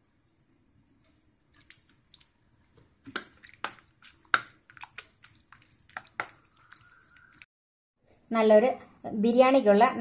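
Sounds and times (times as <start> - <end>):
wet squelches of hand mixing: 1.5 - 7.5.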